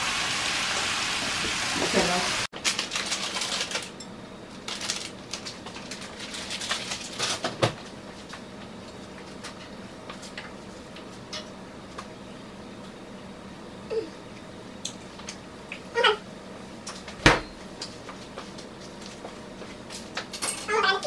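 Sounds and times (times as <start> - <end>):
utensils clinking on plates: 20.2 - 20.8.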